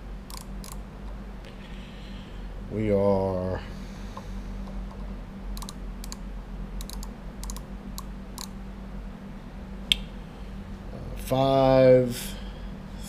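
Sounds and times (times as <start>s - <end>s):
low hum: 0.0s - 13.0s
micrometer ratchet clicking: 0.3s - 0.8s, 5.6s - 6.2s, 6.8s - 8.5s.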